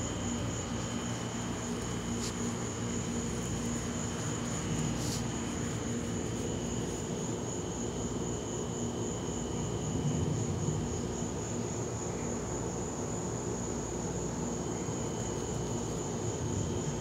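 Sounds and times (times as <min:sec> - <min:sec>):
crickets trilling: 0:00.0 - 0:17.0
low mechanical hum: 0:00.0 - 0:17.0.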